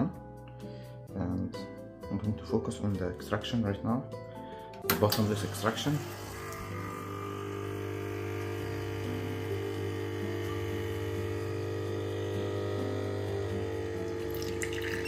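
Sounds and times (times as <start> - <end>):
espresso machine pump humming: 4.9 - 15.0.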